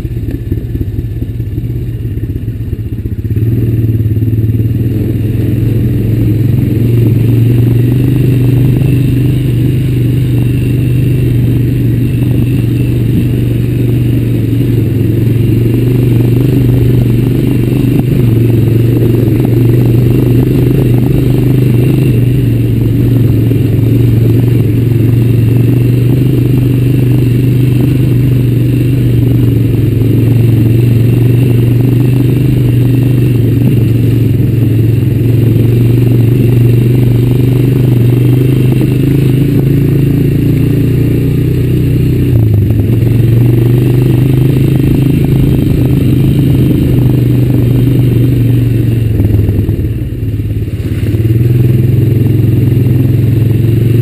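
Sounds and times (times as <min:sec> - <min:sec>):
atv engine running: 0:00.0 - 0:54.0.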